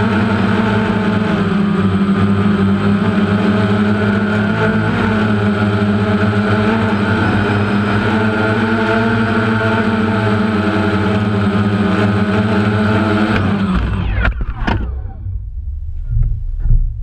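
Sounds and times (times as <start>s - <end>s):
motors spinning down whine: 0.0s - 16.8s
drone propellers buzzing: 0.0s - 16.9s
uneven low rumble: 13.7s - 17.0s.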